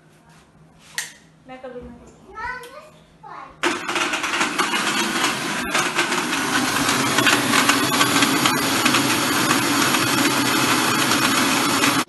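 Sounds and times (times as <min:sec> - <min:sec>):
mixer grinder crushing ice: 0:03.6 - 0:12.0.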